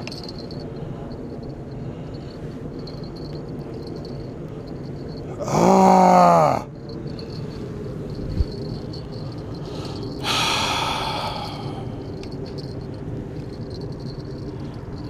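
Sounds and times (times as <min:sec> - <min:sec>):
insects trilling: 0:00.0 - 0:15.0
breath-like rush: 0:09.1 - 0:12.2.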